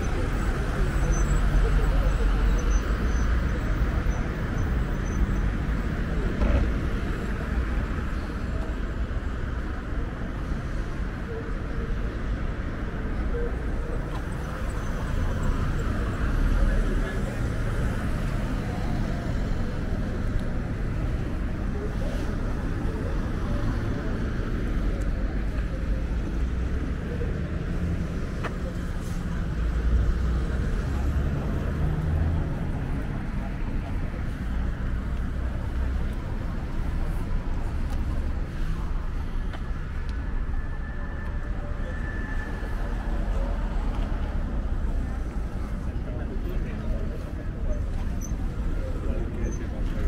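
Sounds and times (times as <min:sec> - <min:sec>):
city traffic rumble: 0:00.0 - 0:50.0
cars driving past: 0:14.1 - 0:50.0.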